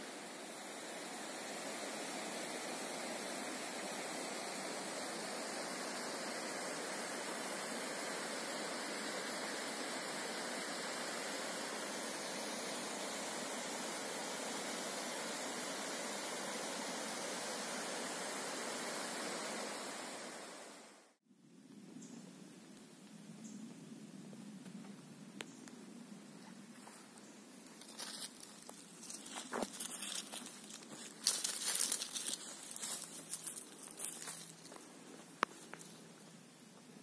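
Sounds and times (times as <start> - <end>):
creek rushing over boulders: 0.0 - 21.1.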